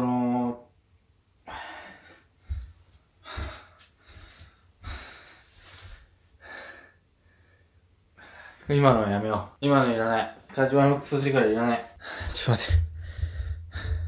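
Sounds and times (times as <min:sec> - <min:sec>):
man breathing hard: 0:01.4 - 0:08.6, 0:11.9 - 0:14.0
soft low thumps: 0:12.0 - 0:14.0.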